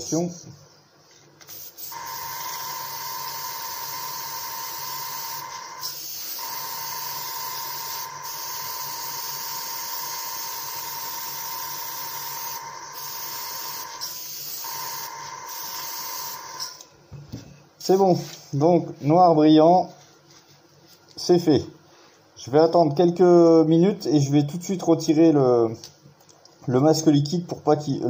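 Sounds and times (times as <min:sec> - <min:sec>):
airbrush spraying hiss: 0:01.4 - 0:16.8.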